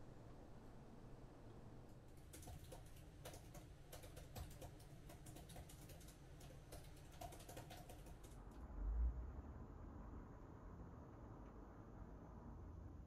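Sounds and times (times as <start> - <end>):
low room hum: 0.0 - 13.0
laptop keyboard typing: 2.1 - 8.4.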